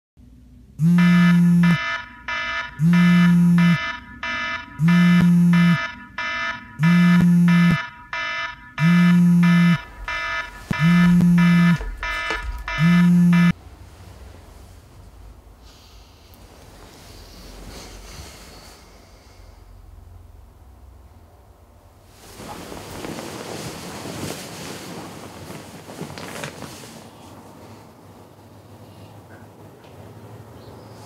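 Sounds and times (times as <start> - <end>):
alarm clock buzzing: 0.8 - 13.6.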